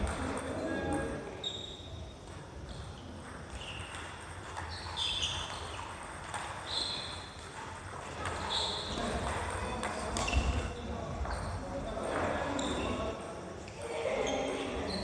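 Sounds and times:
sports shoes squeaking on wood floor: 1.4 - 9.3, 9.9 - 11.7.

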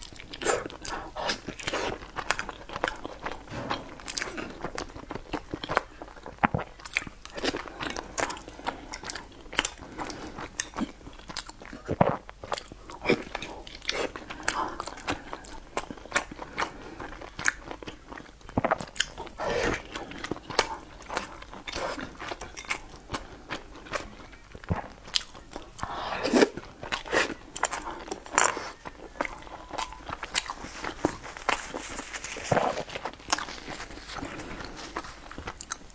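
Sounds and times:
person biting and chewing food: 0.0 - 35.9
mouth clicks and smacks: 17.3 - 23.2.

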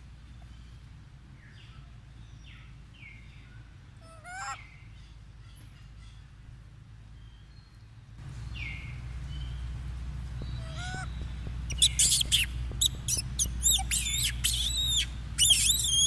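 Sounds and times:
steady low hum: 0.0 - 16.0
faint gliding calls: 8.2 - 16.0
high-pitched chirping animal calls: 10.6 - 16.0.

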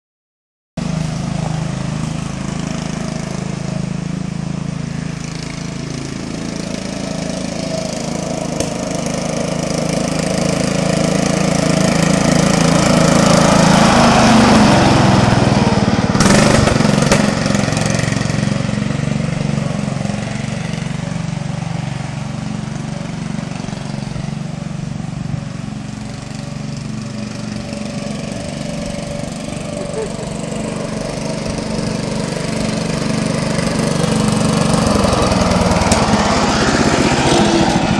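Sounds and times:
riding mower engine running: 0.8 - 37.9.

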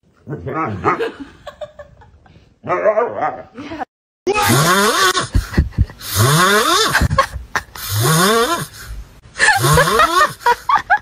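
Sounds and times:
puppy snoring: 6.0 - 7.1.

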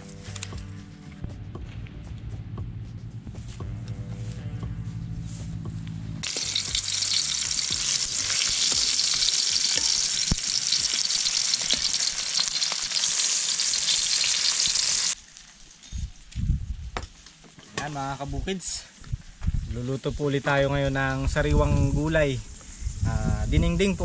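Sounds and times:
background music: 0.0 - 12.2
fish sizzling in hot oil: 6.2 - 15.2.

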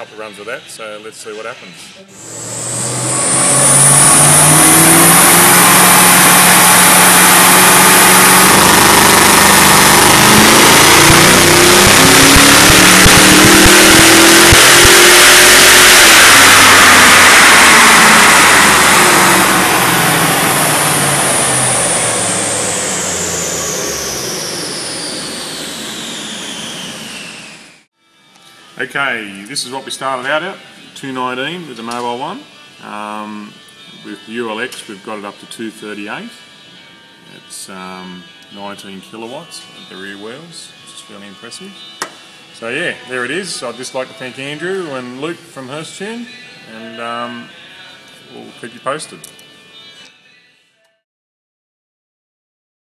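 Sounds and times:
dyno rollers high whine: 2.0 - 27.9
car engine revving on dyno: 2.2 - 27.8.

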